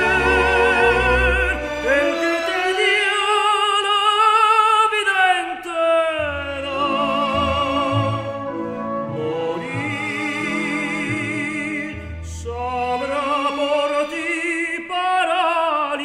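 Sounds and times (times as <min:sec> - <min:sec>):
orchestral accompaniment: 0:00.0 - 0:03.7, 0:06.2 - 0:14.6
operatic tenor singing: 0:00.0 - 0:16.0.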